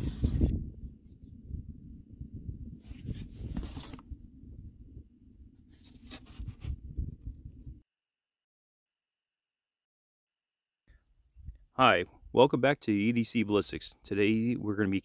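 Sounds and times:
cardboard sign rustling and scraping: 0.0s - 0.6s, 2.8s - 4.2s, 5.6s - 6.8s
low rumble on microphone: 0.0s - 7.8s.

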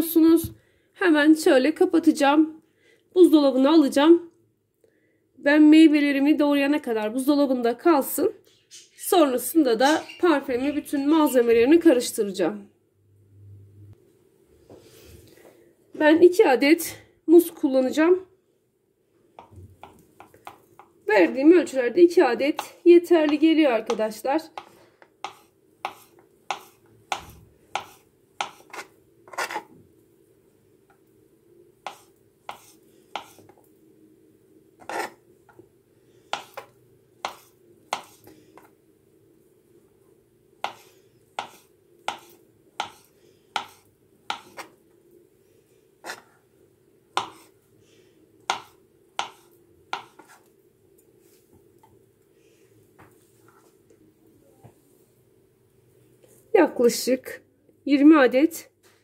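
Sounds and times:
knife tapping on cutting board: 41.4s - 43.0s.

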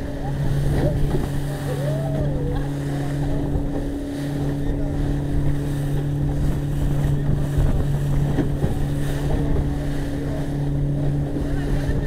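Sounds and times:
motorboat engine running: 0.0s - 12.0s
water rushing: 0.0s - 12.0s
wind buffeting microphone: 0.0s - 12.0s.

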